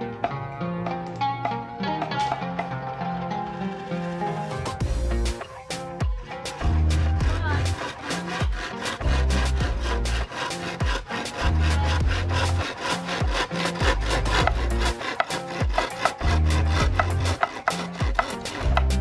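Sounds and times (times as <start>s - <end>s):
background music with bass line: 0.0s - 19.0s
hand saw sawing bamboo: 6.4s - 19.0s.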